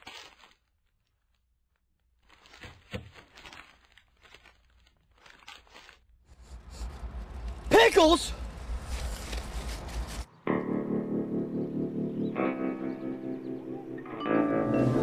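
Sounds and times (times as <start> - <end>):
paper wrapper crinkling: 0.0 - 6.8, 8.6 - 10.3
sharp paper crackle: 0.0 - 7.6, 8.5 - 10.3.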